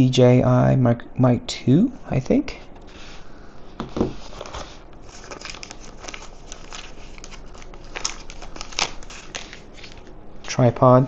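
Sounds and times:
plastic wrapper crinkling: 0:04.2 - 0:10.1.

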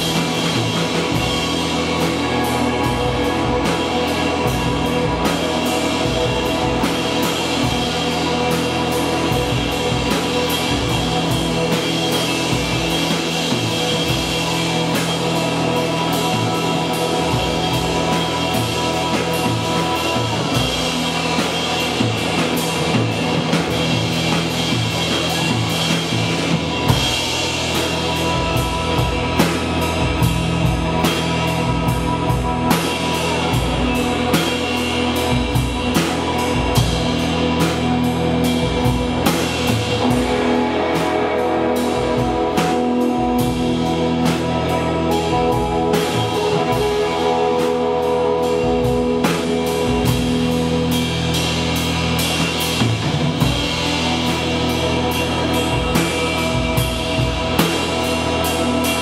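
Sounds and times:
amplified electric guitar: 0:00.0 - 0:59.0
drum kit snare and bass drum: 0:00.0 - 0:59.0
rock band playing: 0:00.0 - 0:59.0.

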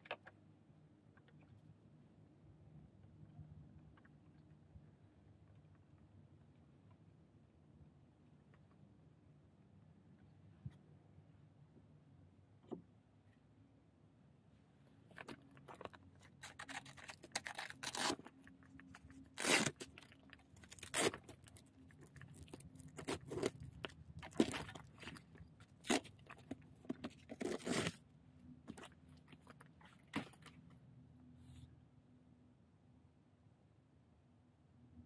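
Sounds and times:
tearing sounds: 0:16.2 - 0:28.0.

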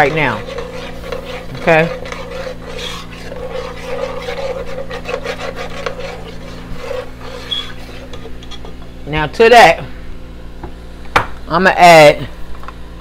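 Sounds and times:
metal spoon scraping a pot: 0:00.0 - 0:08.9
steady low hum: 0:00.0 - 0:13.0.

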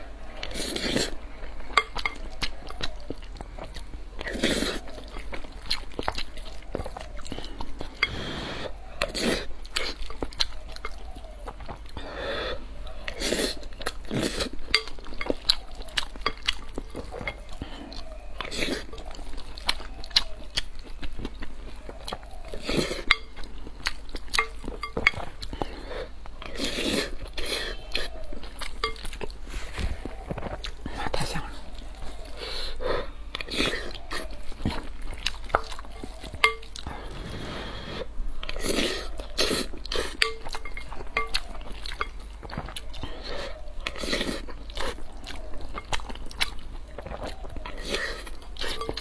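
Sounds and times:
chewing and crunchy bites: 0:00.0 - 0:49.0
utensils clinking against dishes: 0:24.4 - 0:25.3, 0:40.0 - 0:42.2, 0:47.7 - 0:49.0.

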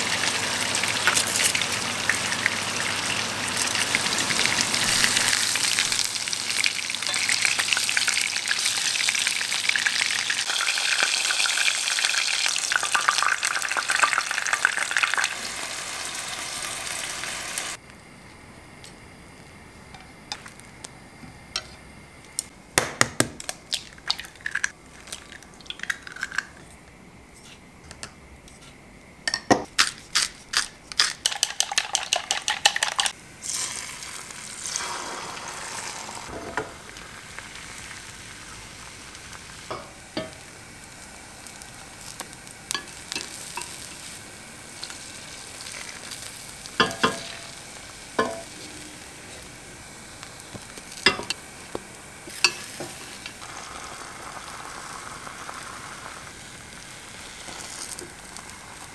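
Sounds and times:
egg sizzling in a pan: 0:00.0 - 0:17.8, 0:23.7 - 0:26.7, 0:29.8 - 0:58.9
chopsticks tapping a pan: 0:46.8 - 0:47.5, 0:48.2 - 0:48.5.

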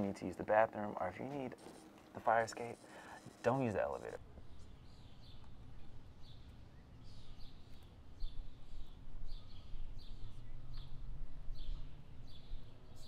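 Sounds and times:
small birds chirping: 0:02.8 - 0:13.0.

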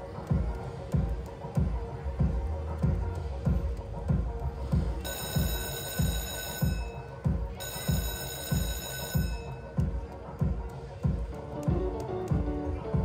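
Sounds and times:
bass beat music: 0:00.0 - 0:13.0
slot machine jackpot bell ringing: 0:05.0 - 0:09.7.

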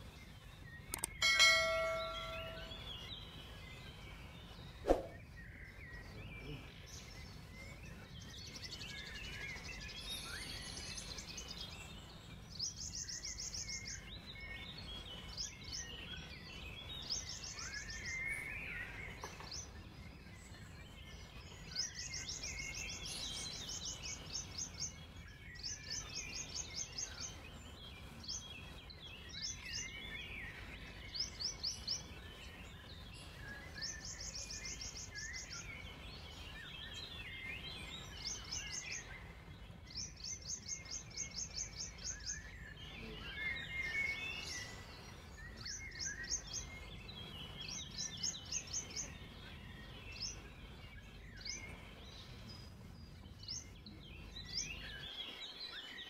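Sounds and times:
birds chirping lower: 0:00.0 - 0:56.0
songbird fast high notes: 0:01.2 - 0:02.9.

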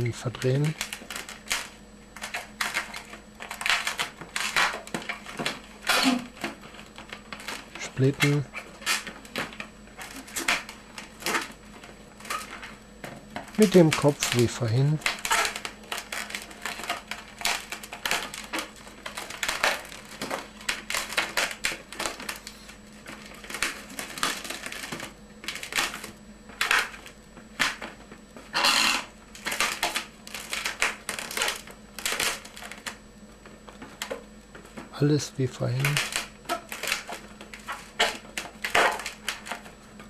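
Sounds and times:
latex balloon squeaking and rubbing: 0:14.9 - 0:16.8, 0:28.5 - 0:29.1.

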